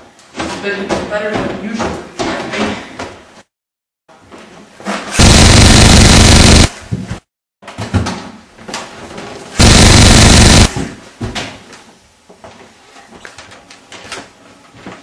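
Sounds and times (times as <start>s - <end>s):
automatic gunfire: 5.2s - 6.7s, 9.6s - 10.7s.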